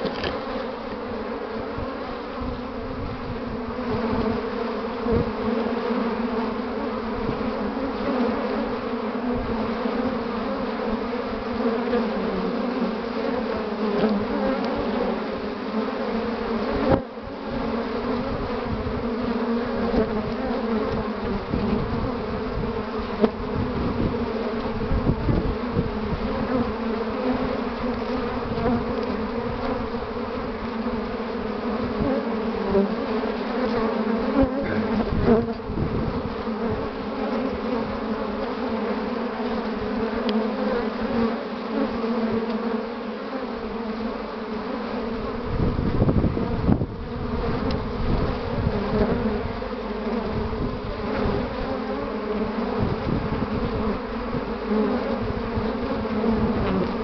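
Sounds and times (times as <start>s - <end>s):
honeybees buzzing: 0.0s - 57.0s.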